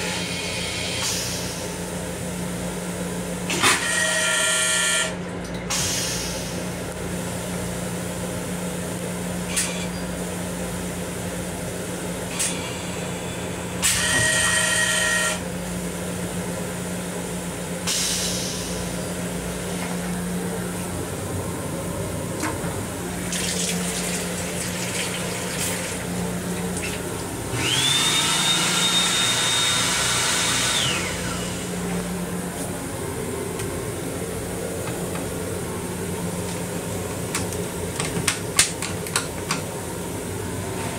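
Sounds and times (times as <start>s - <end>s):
steady low hum: 15.5s - 27.8s, 31.0s - 40.9s.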